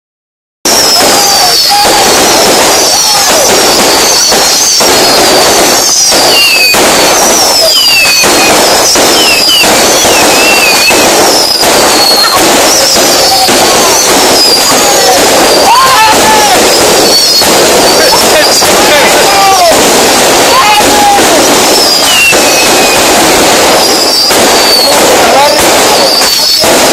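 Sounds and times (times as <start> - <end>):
fireworks crackling and banging: 0.6 - 26.9
fireworks whistling: 0.6 - 26.9.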